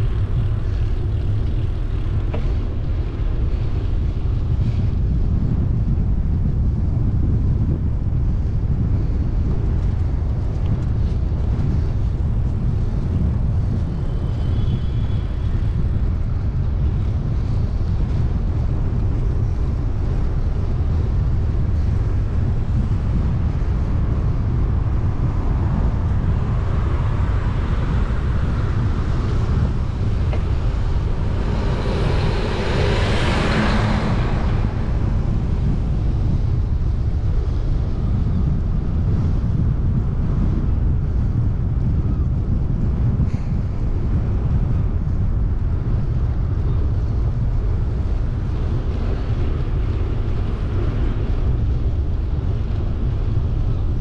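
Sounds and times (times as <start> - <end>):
wind rumble on microphone: 0.0 - 54.0
motor vehicle passing: 28.1 - 37.0.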